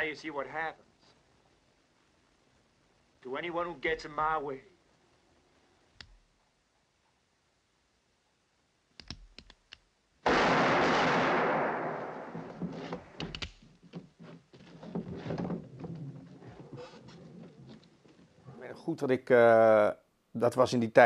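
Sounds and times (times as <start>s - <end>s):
small clicks: 9.0s - 9.9s.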